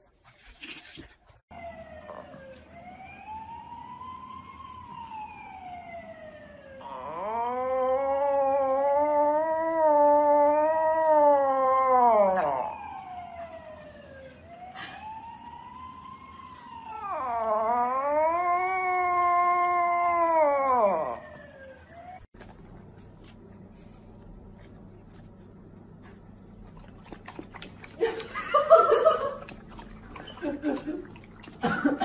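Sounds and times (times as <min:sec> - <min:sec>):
small dog howling: 0:06.8 - 0:13.0, 0:16.9 - 0:21.5.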